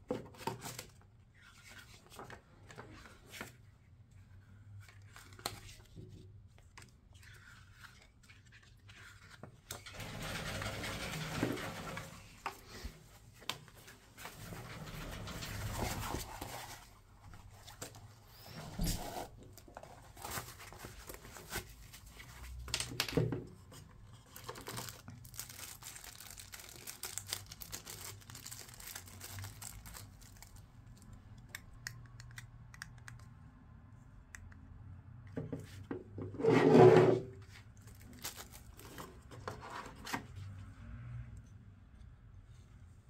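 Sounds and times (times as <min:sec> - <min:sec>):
plastic bag crinkling: 0:24.4 - 0:30.7.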